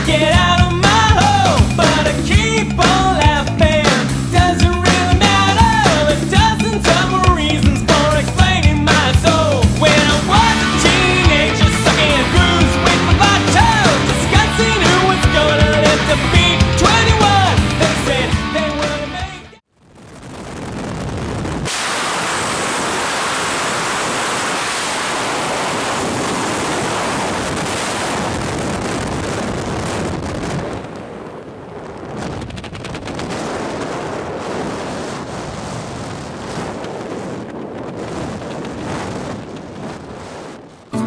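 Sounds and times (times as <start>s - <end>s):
wind rushing over microphone: 19.8s - 41.0s.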